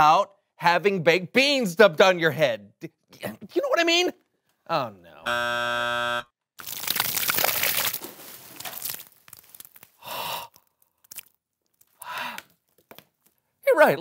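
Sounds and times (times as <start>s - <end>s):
short buzzer: 5.3s - 6.3s
wet gloppy material splattering: 6.6s - 10.0s, 10.6s - 12.0s.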